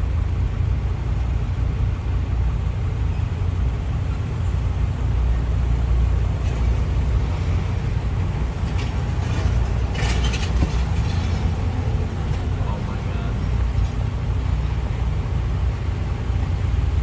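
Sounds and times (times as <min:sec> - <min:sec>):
road traffic rumble inside car: 0:00.0 - 0:17.0
trucks passing close by: 0:00.0 - 0:17.0
brief clatter: 0:08.6 - 0:11.6.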